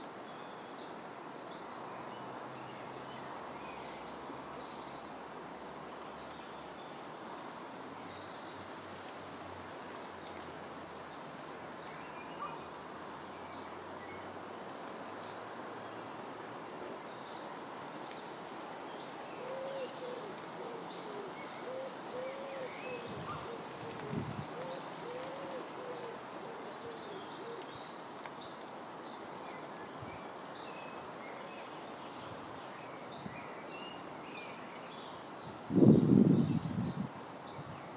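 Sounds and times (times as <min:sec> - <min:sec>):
pigeon cooing: 0:19.4 - 0:27.7.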